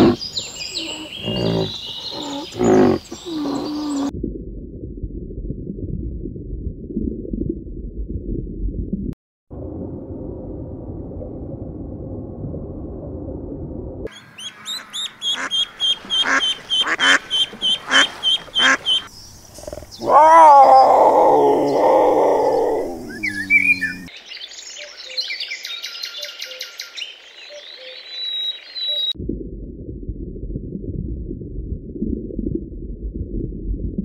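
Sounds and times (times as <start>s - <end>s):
lioness growling: 0.0s - 4.1s, 19.5s - 24.1s
ducklings peeping: 14.1s - 19.1s
duck quacking: 14.4s - 19.1s.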